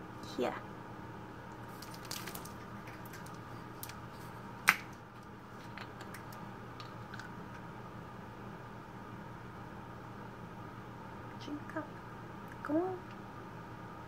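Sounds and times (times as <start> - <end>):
plastic bottle crinkling: 1.6 - 4.9.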